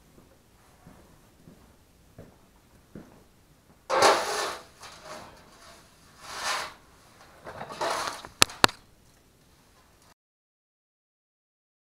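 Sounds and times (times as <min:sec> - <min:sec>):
broom sweeping concrete floor: 0:03.9 - 0:08.4.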